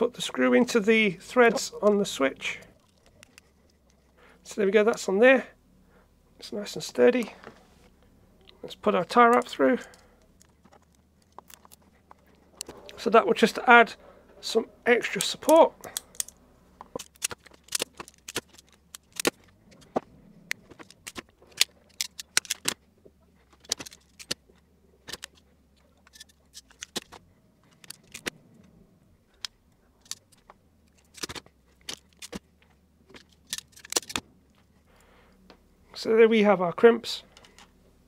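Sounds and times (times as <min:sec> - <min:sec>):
wire stripper and crimp tool clicking: 0:15.2 - 0:19.9, 0:20.5 - 0:22.8.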